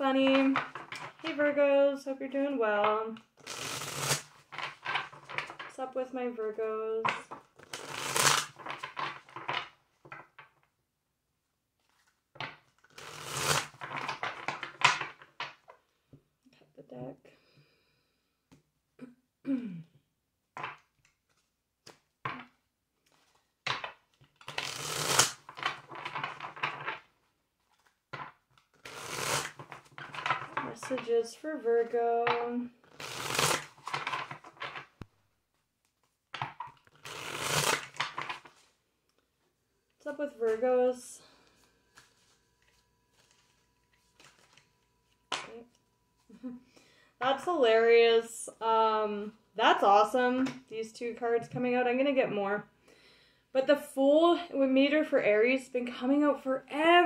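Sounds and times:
cards being shuffled: 3.2s - 5.7s, 7.0s - 10.2s, 11.8s - 15.8s, 20.6s - 31.2s, 32.2s - 39.2s, 41.4s - 45.7s.

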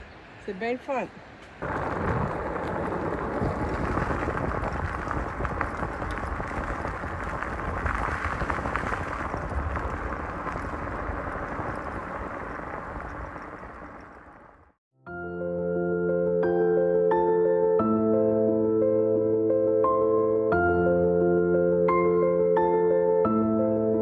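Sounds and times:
bicycle tyres rolling on gravel: 1.5s - 14.8s
wind rushing over microphone: 1.6s - 14.8s.

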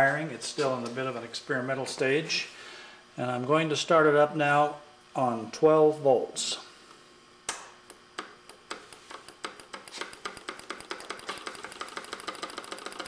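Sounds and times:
solenoid engine clicking: 7.5s - 13.0s.

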